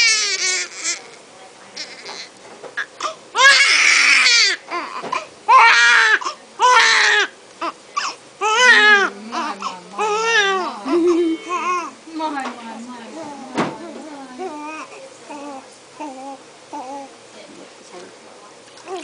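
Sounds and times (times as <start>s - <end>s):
newborn baby crying: 0.0s - 1.2s, 1.8s - 12.0s, 14.4s - 17.1s.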